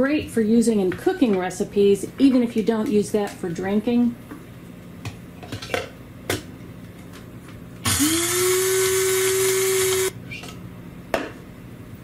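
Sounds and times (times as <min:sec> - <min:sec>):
coffee grinder whirring: 0:07.8 - 0:10.2.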